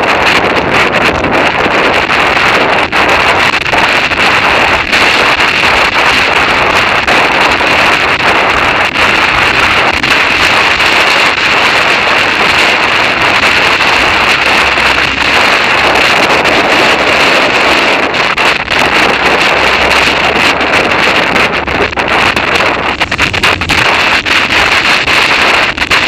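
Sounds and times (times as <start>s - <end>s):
wind noise on microphone: 0.0s - 26.0s.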